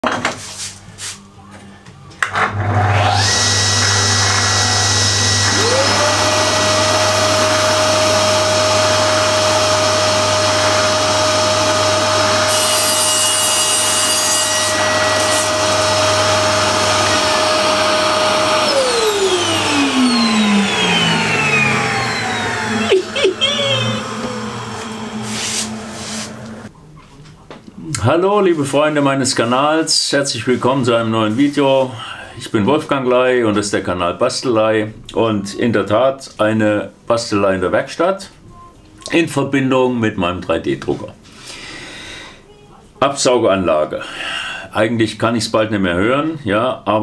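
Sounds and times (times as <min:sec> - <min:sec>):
dust extractor running: 0:02.4 - 0:13.0, 0:14.7 - 0:26.7
table saw motor whine: 0:02.4 - 0:26.7.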